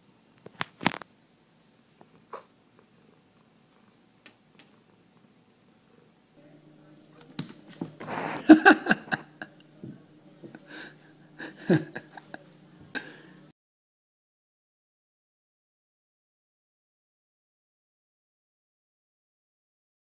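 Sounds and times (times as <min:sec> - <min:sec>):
steady low hum: 0:01.3 - 0:13.5
person laughing under breath: 0:08.0 - 0:09.7, 0:10.5 - 0:13.4.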